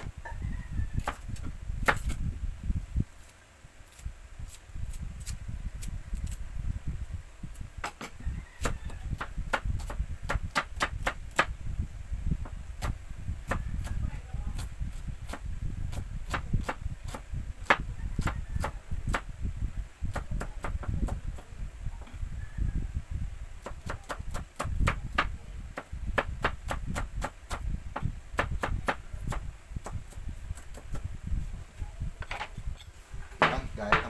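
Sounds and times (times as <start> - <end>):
low steady rumble: 0.0 - 34.0
knife chopping on wooden board: 7.8 - 11.5, 33.4 - 34.0.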